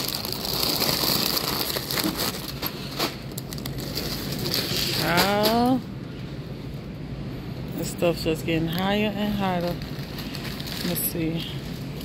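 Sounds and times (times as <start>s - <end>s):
plastic bags crinkling: 0.0s - 5.8s, 8.7s - 12.0s.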